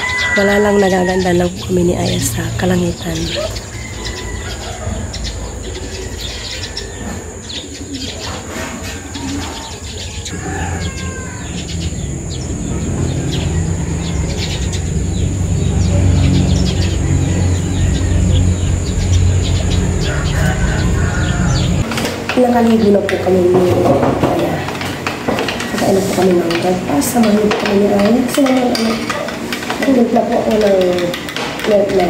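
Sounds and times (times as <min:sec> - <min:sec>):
birds chirping: 0:00.0 - 0:32.0
low rumble: 0:10.3 - 0:21.9.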